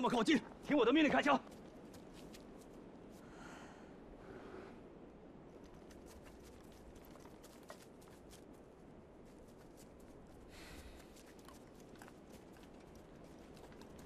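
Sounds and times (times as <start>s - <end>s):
footsteps crunching in snow: 1.0s - 3.2s.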